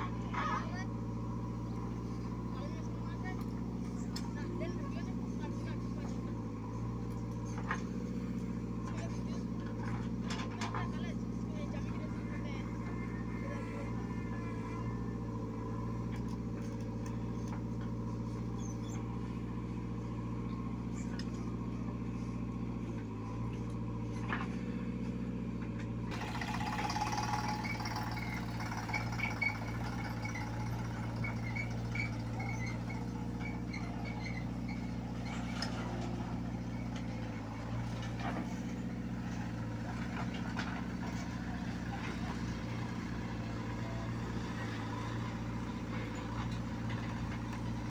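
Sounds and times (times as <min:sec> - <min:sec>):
diesel engines running: 0:00.0 - 0:47.9.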